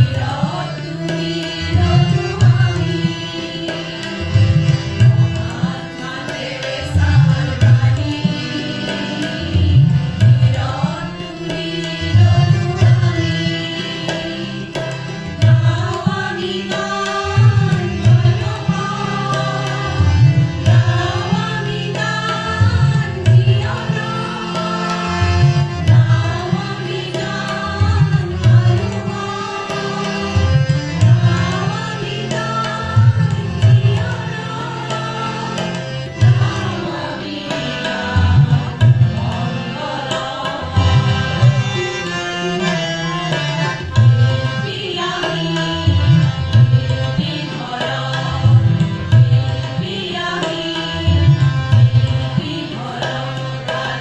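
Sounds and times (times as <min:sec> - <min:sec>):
women singing together: 0:00.0 - 0:54.0.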